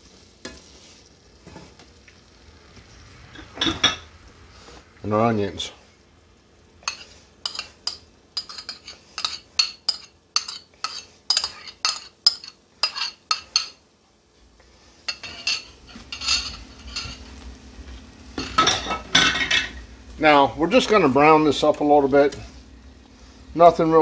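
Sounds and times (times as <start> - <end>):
metal spoon clinking ceramic bowl: 6.9 - 13.8, 15.1 - 17.1.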